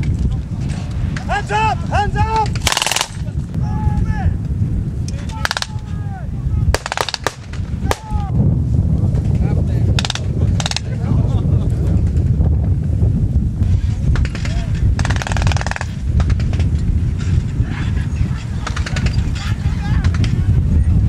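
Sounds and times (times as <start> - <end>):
men shouting: 1.2 - 2.5, 5.2 - 6.6, 7.8 - 8.4, 19.4 - 20.1
gunfire shots and bursts: 2.6 - 3.2, 6.8 - 8.0, 10.0 - 10.8, 14.2 - 16.7.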